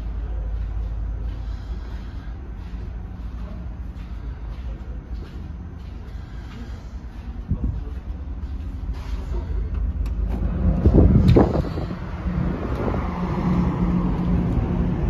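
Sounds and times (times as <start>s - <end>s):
ship engines droning: 0.0s - 15.0s
rush of air: 10.4s - 15.0s.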